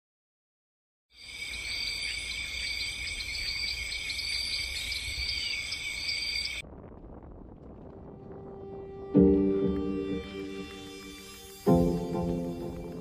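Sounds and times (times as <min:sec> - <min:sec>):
crickets and insects trilling: 0:01.2 - 0:06.7, 0:10.3 - 0:13.0
low rumble: 0:06.6 - 0:13.0.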